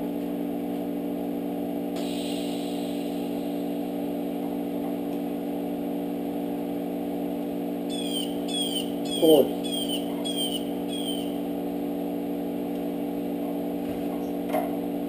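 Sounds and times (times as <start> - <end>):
welder electrical hum: 0.0 - 15.0
welding arc hiss: 2.0 - 3.8.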